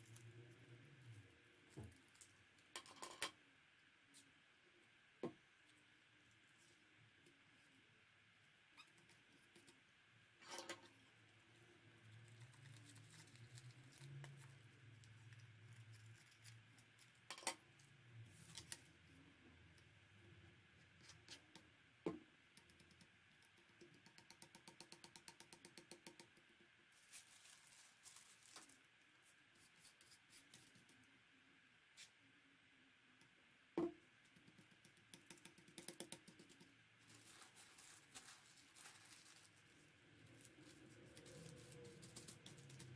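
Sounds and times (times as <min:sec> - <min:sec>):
tissue paper rustling: 0:26.9 - 0:28.9, 0:37.0 - 0:42.8.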